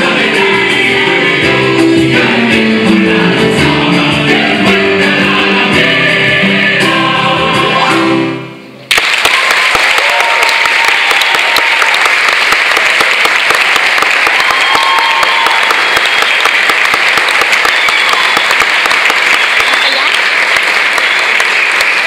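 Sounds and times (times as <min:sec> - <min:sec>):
choir chord: 0:00.0 - 0:08.6
audience applause: 0:08.9 - 0:22.0
audience cheering: 0:08.9 - 0:22.0.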